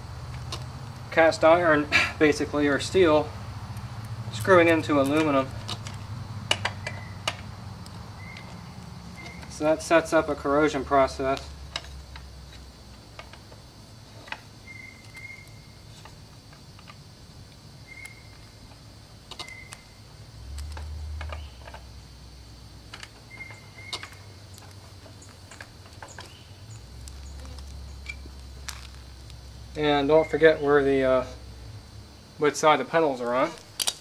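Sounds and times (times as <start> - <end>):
bicycle pedal threads clicking: 3.6 - 10.3, 33.6 - 34.0.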